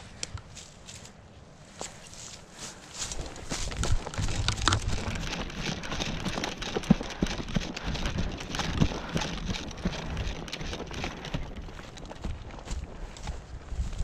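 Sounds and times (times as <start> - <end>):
footsteps crunching through leaves: 0.5 - 5.4, 10.6 - 14.0.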